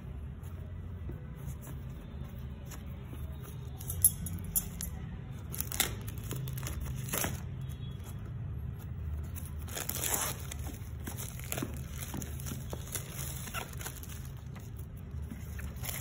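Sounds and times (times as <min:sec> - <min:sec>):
plastic wrap crinkling: 0:09.3 - 0:16.0.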